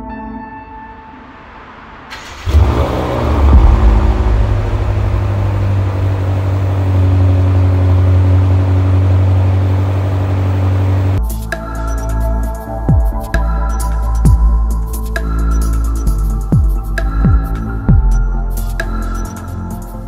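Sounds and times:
car engine starting and idling: 2.0s - 11.2s.

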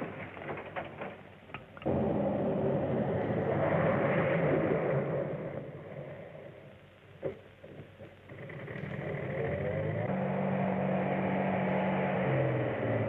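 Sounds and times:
engine running: 1.8s - 13.0s.

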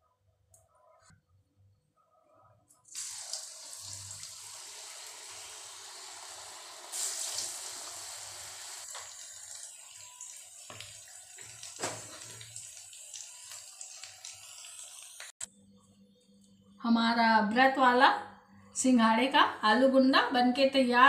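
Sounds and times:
deep frying sizzle: 2.9s - 15.4s.

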